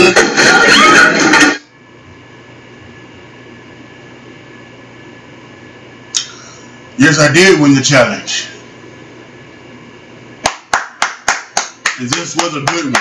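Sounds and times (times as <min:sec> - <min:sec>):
room hum: 0:00.0 - 0:13.0.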